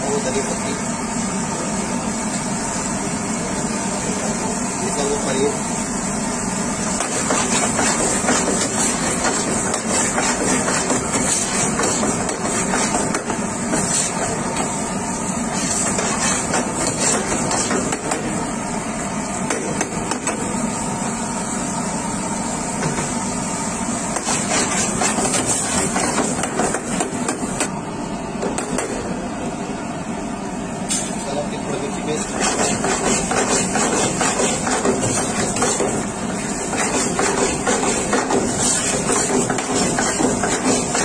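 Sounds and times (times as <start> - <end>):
steady noisy background: 0.0 - 41.0
utensils knocking and clanking: 36.7 - 41.0.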